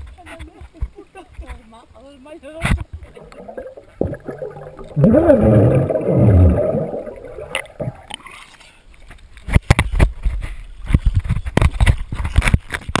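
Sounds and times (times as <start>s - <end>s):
pool water splashing on camera: 2.9s - 8.3s.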